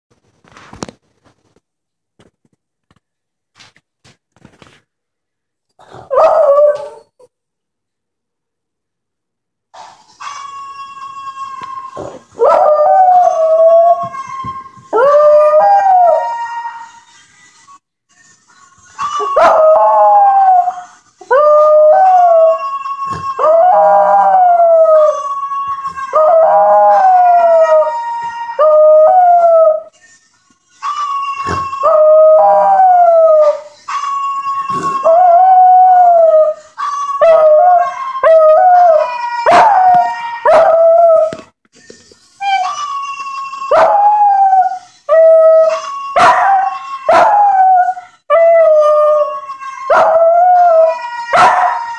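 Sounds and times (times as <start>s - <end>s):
dog howling: 37.2s - 41.4s, 43.5s - 51.9s.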